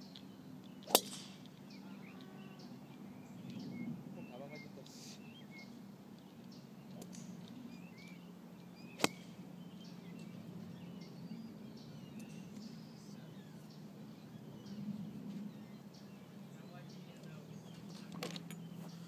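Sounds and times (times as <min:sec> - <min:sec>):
golf club striking ball: 0:00.8 - 0:01.7, 0:08.9 - 0:09.4.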